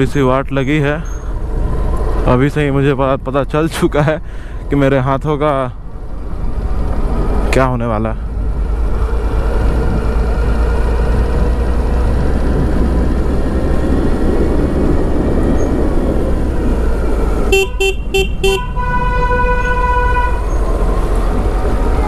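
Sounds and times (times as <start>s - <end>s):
motorcycle riding: 0.0s - 22.0s
wind on microphone: 8.3s - 22.0s
vehicle horn tooting: 17.5s - 20.6s.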